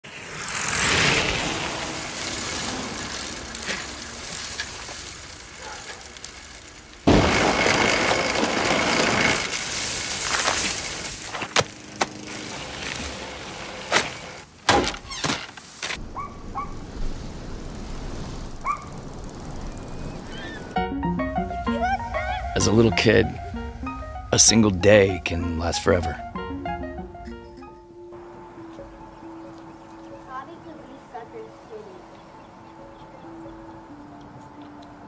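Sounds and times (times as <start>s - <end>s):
bicycle rolling over dry leaves: 0.0s - 14.5s, 15.4s - 20.8s
outdoor hiss: 0.1s - 20.8s.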